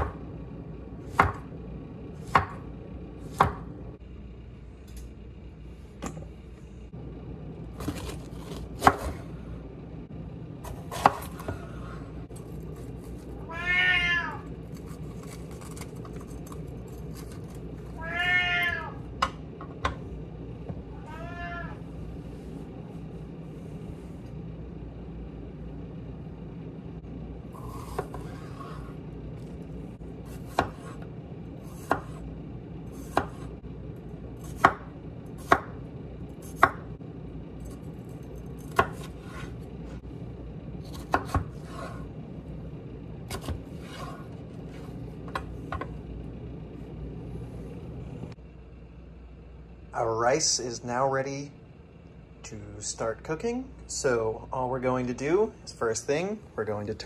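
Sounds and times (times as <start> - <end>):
knife chopping on wooden board: 1.1 - 1.5, 2.2 - 2.6, 3.3 - 3.7, 10.7 - 11.6, 27.7 - 28.8, 30.3 - 31.0, 31.7 - 32.2, 33.0 - 33.5, 34.4 - 35.7, 40.9 - 42.0
cat meowing: 13.4 - 14.4, 18.0 - 19.0, 20.9 - 21.8.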